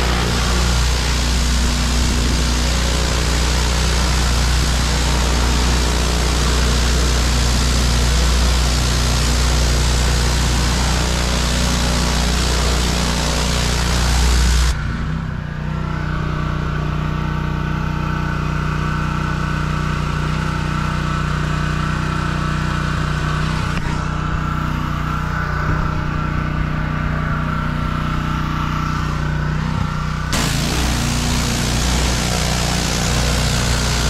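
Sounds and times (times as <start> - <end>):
water spray hissing: 0.0 - 14.7, 30.4 - 34.0
small gas engine running: 0.0 - 34.0.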